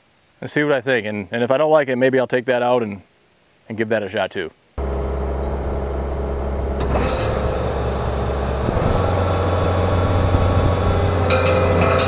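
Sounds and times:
diesel engine running: 4.8 - 12.0
power rake digging into soil: 5.9 - 12.0.

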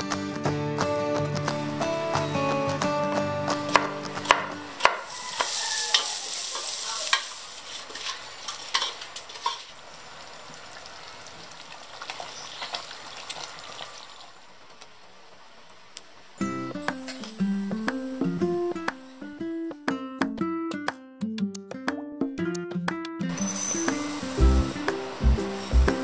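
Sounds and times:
food sizzling in a pot: 3.8 - 14.6, 16.4 - 19.6, 23.3 - 26.0
utensil scraping pan: 5.0 - 9.6.

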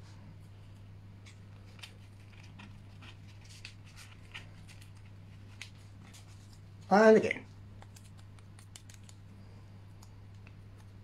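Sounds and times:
steady low hum: 0.0 - 11.0
paper rustling and clicks: 1.2 - 6.6.

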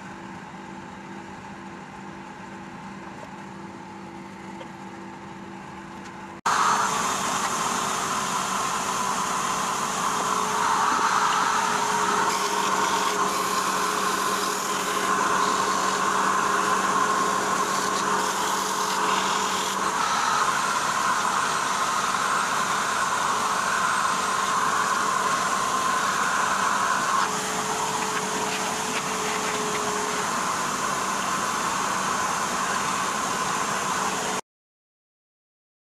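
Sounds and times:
dust extraction vacuum running: 6.5 - 34.4
wood lathe whirring: 6.5 - 34.4
sandpaper sanding spinning wood: 6.6 - 34.1.

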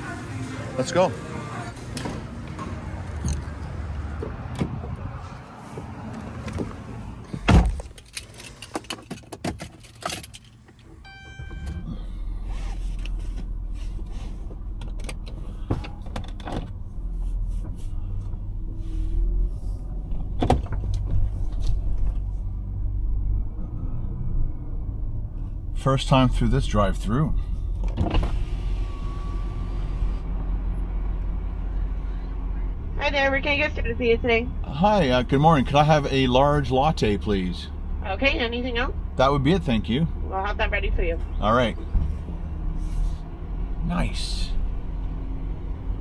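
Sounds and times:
van engine rumbling: 0.0 - 46.0
short electronic chime: 11.1 - 12.0.

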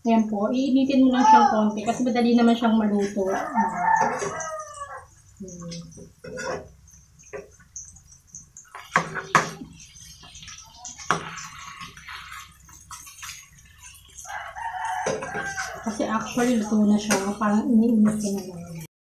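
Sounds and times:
meat sizzling: 1.8 - 18.7
metal spatula scraping a pan: 5.9 - 8.0, 8.6 - 18.6.

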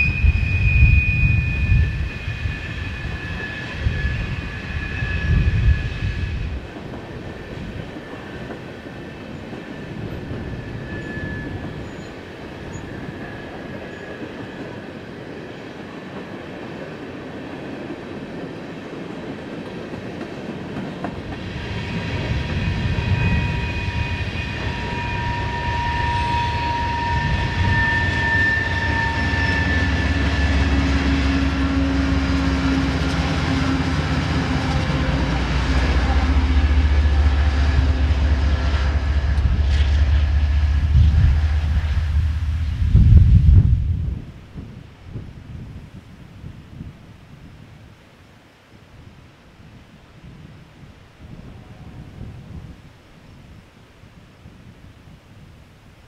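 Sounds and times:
high wheel squeal: 0.0 - 6.6, 9.0 - 14.9, 21.4 - 40.3
diesel locomotive drone: 0.0 - 56.0
wind rumble on microphone: 0.0 - 56.0.

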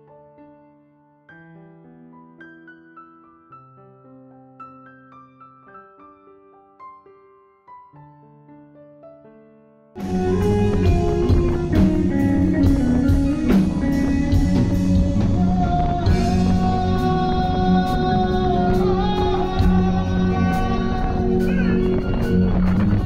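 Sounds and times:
keyboard: 0.0 - 23.0
drum kit beat: 10.0 - 23.0
electric guitar: 10.0 - 23.0.

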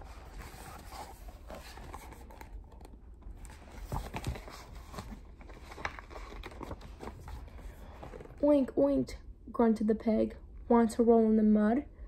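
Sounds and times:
paper rustling: 0.0 - 8.4.

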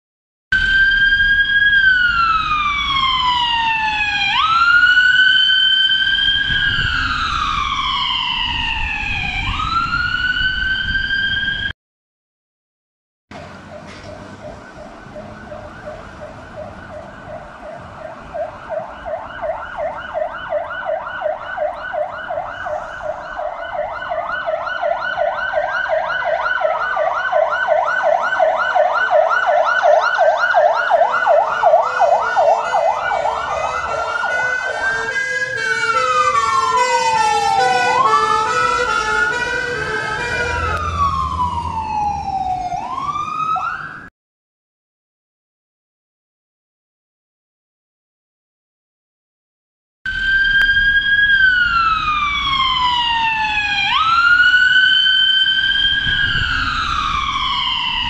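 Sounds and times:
siren wail: 0.5 - 11.7, 13.4 - 44.1, 50.1 - 58.0
siren yelp: 0.5 - 11.7, 13.4 - 44.1, 50.1 - 58.0
two-tone siren: 0.5 - 11.7, 13.3 - 44.1, 50.1 - 58.0
heavy vehicle engine rumbling: 13.3 - 19.4, 22.3 - 24.7, 31.1 - 43.0.

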